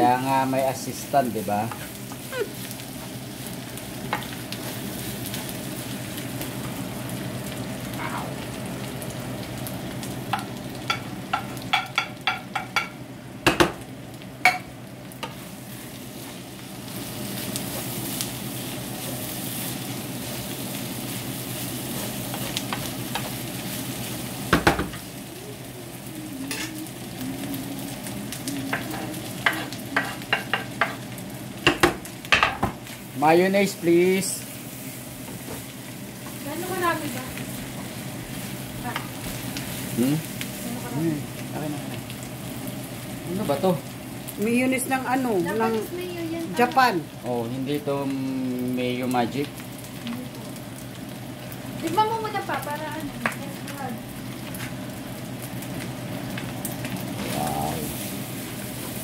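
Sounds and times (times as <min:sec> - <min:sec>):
meat sizzling in a frying pan: 0:00.0 - 0:59.0
spatula clicking and scraping pan: 0:28.7 - 0:31.0.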